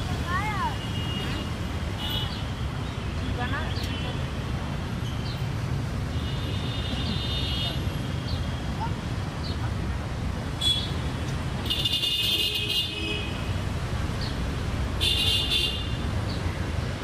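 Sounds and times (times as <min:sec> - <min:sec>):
traffic rumble: 0:00.0 - 0:17.0
vehicle horns tooting: 0:11.6 - 0:13.5, 0:15.0 - 0:16.0.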